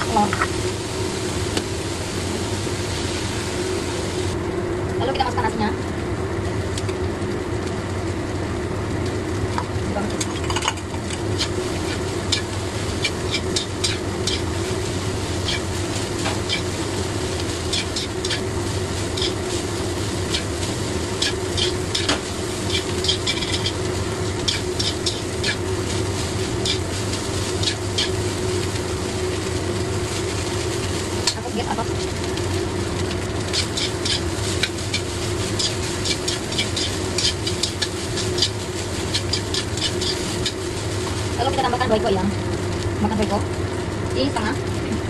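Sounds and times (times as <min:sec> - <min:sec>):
rice sizzling in a wok: 0:00.0 - 0:45.0
metal spatula scraping a wok: 0:11.2 - 0:28.7, 0:33.4 - 0:41.2.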